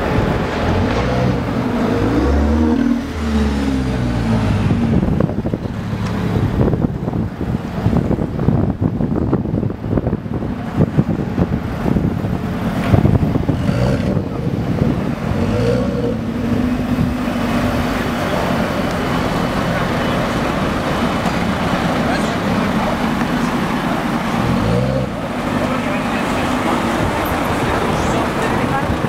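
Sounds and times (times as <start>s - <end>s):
wind noise on microphone: 0.0s - 21.8s
car engine pulling away: 0.0s - 29.0s.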